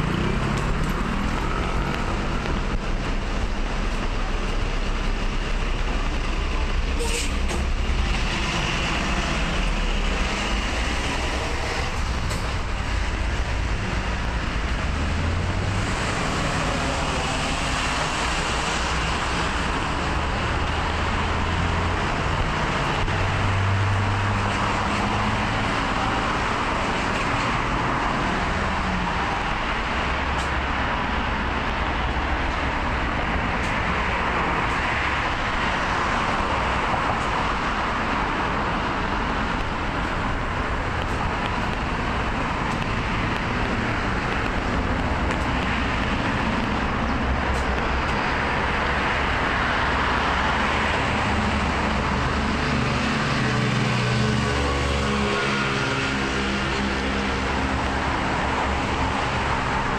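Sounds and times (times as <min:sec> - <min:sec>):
road traffic rushing: 0:00.0 - 0:59.9.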